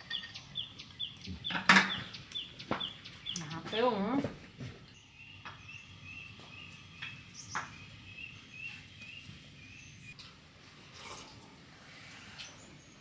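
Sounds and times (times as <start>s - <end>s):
small bird chirping: 0.0s - 3.8s, 4.9s - 10.2s.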